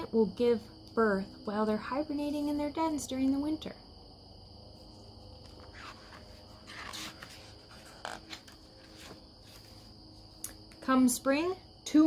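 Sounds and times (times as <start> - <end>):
crickets chirping: 0.0 - 12.0
book page turning: 5.3 - 10.0.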